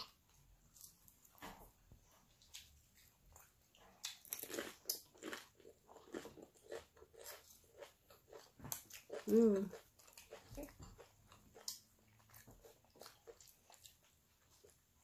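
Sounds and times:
crunching and chewing food: 0.0 - 15.0.

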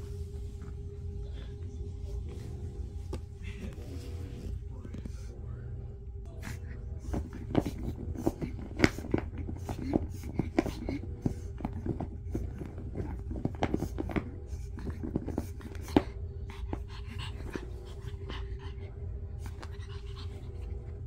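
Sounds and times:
low hum: 0.0 - 21.0
dog panting: 7.0 - 21.0
rustles and clicks on dog bed: 7.1 - 18.0.

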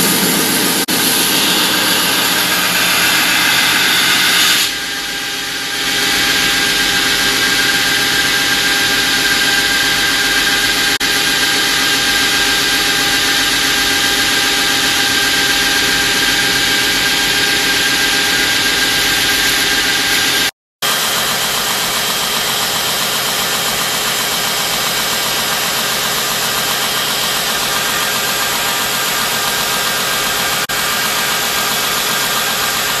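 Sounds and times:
belt grinder grinding steel: 0.0 - 4.9.

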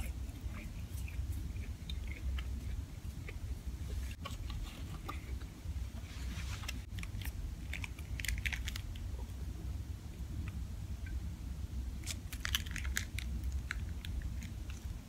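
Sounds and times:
chewing fried food: 0.0 - 5.6, 6.9 - 9.4
steady low hum: 0.0 - 15.0
plastic packet crinkling: 6.9 - 9.0, 12.1 - 14.8.

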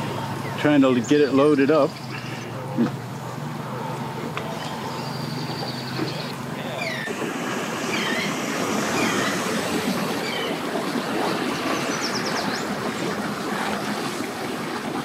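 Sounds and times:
water churning: 0.0 - 15.0
watercraft engine idling: 0.0 - 15.0
bird chirps: 4.4 - 7.1, 11.5 - 12.7.

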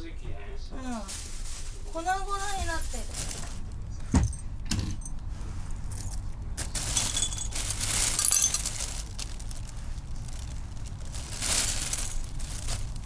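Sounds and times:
broken glass clinking: 6.8 - 8.8.

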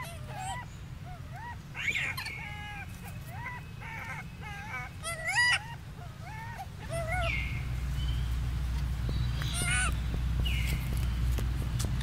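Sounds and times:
high-pitched animal calls: 0.0 - 7.8, 9.4 - 10.0
steady low hum: 0.0 - 12.0.

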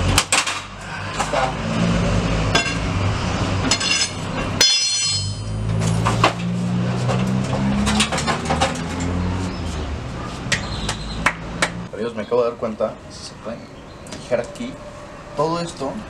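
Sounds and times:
metal clanks and knocks: 2.5 - 2.9, 3.6 - 9.2.

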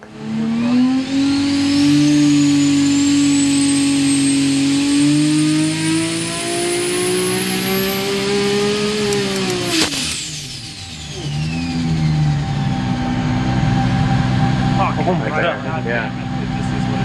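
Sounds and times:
engine revving under load: 0.0 - 17.0
turbo whine: 0.0 - 17.0
sharp crack: 9.0 - 10.7.

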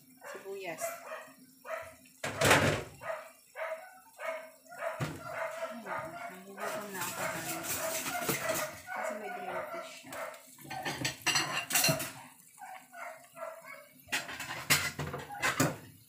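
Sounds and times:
dog vocalizing: 3.0 - 10.4
metal utensil clinking on pot: 6.6 - 9.2, 10.6 - 12.2, 14.1 - 15.8.

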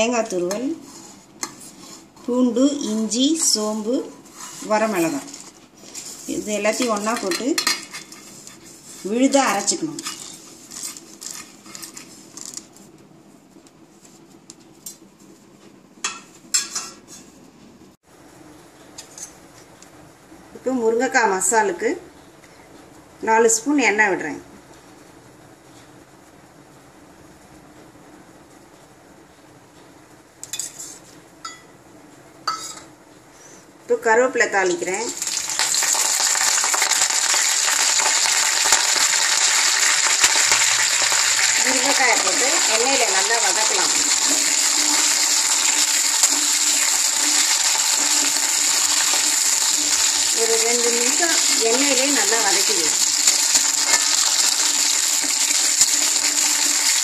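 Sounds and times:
leaves sizzling in hot oil: 1.8 - 7.8, 34.7 - 57.0.

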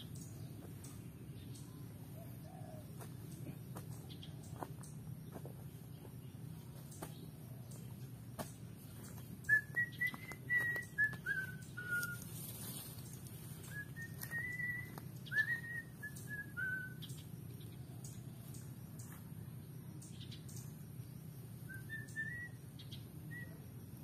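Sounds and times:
person whistling a tune: 9.5 - 12.3, 13.7 - 17.0.

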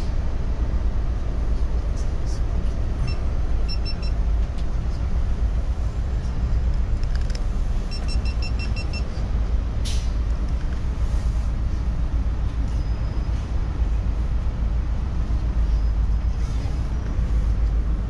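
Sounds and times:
bus engine and road rumble: 0.0 - 18.0
short high beeps: 7.9 - 9.1.

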